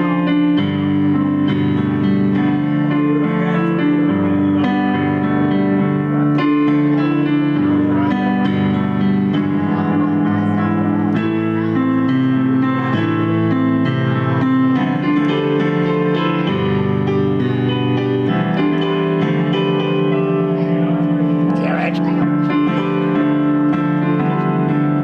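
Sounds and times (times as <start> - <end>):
electric keyboard chords: 0.0 - 25.0.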